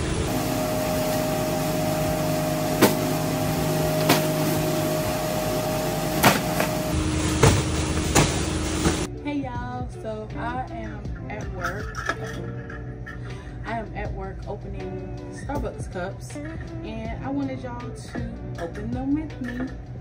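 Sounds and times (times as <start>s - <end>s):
road and engine noise in car: 0.0s - 9.1s
music: 9.0s - 20.0s.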